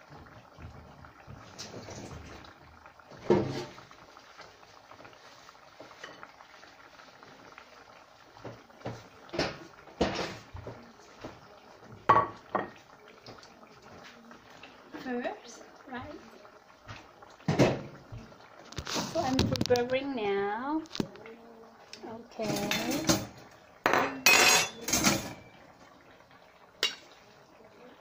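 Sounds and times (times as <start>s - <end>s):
dishes and pots clinking: 8.8s - 11.4s, 12.0s - 12.8s, 22.4s - 25.6s, 26.8s - 27.2s.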